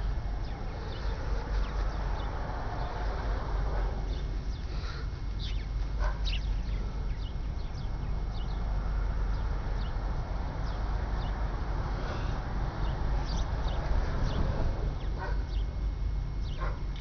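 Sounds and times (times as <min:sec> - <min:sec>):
steady low rumble: 0:00.0 - 0:17.0
high chirping animal calls: 0:05.4 - 0:08.6.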